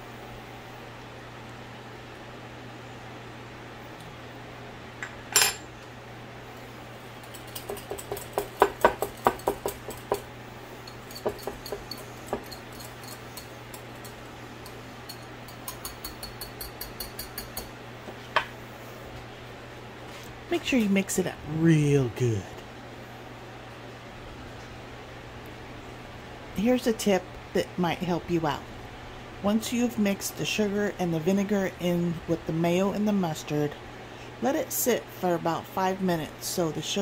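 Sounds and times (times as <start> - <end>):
kitchen fan humming: 0.0 - 37.0
whisk clinking against bowl: 7.3 - 10.2, 10.8 - 17.7.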